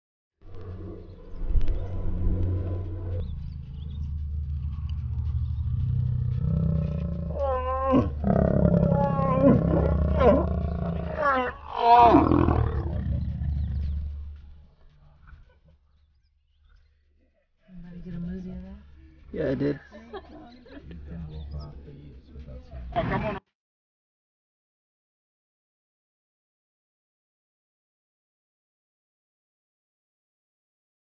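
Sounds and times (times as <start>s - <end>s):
lion deep growl: 0.4s - 15.5s.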